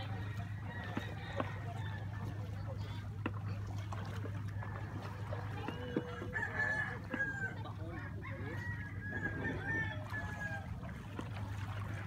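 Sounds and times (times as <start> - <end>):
steady low hum: 0.0 - 12.0
rooster crowing: 8.2 - 10.7.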